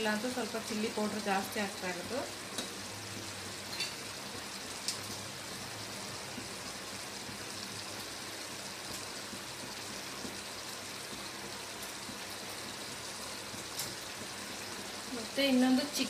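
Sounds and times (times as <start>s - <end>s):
gravy simmering and sizzling: 0.0s - 16.0s.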